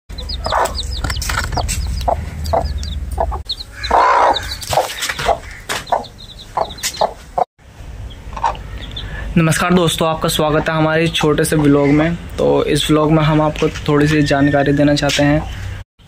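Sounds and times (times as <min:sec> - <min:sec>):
hen clucking: 0:00.1 - 0:07.5, 0:08.2 - 0:09.2, 0:10.3 - 0:12.1
chicks peeping: 0:00.1 - 0:12.1.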